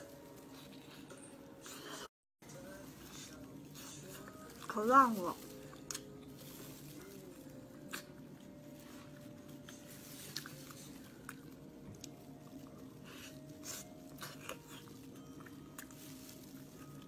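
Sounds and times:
person chewing wetly: 5.5 - 17.0.

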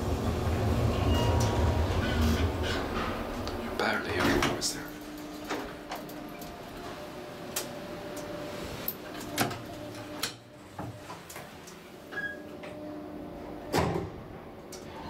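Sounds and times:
lift low hum: 0.0 - 8.9
sliding doors closing thud: 13.6 - 14.3.

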